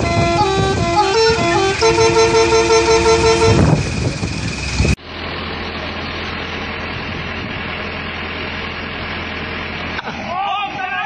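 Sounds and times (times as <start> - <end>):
multi-tone horn chord: 0.0 - 3.8
idling bus engine hum: 0.0 - 11.0.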